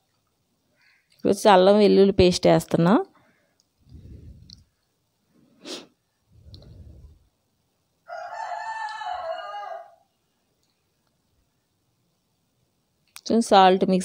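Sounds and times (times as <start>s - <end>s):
rooster crowing: 8.0s - 10.1s.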